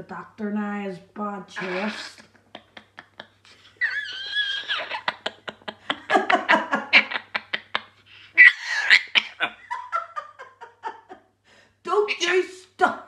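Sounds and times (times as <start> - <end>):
parrot clicks and chatter: 1.6 - 2.4.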